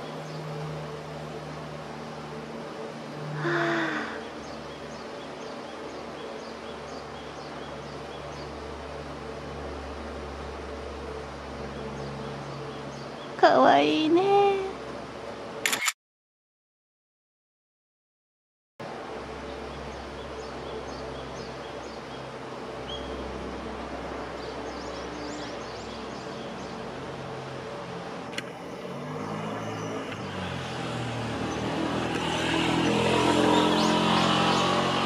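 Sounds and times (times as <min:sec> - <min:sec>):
road traffic rumbling: 0:00.0 - 0:15.6, 0:18.8 - 0:35.0
vehicle engine: 0:00.0 - 0:15.9, 0:18.8 - 0:35.0
sharp click: 0:15.6 - 0:16.0.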